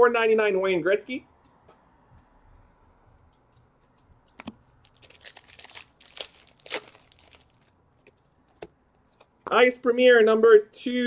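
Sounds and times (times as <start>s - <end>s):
wrapper crinkling and tearing: 4.8s - 7.7s.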